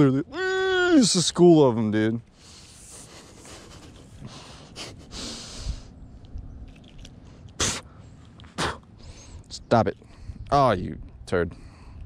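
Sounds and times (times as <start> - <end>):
stifled laugh: 3.0 - 5.2
man exhaling breathily: 4.2 - 5.9.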